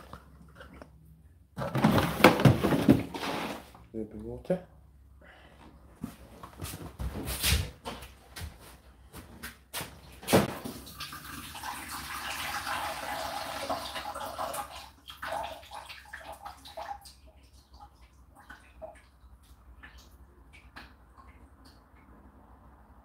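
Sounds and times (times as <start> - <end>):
water trickling and dripping: 10.6 - 22.4.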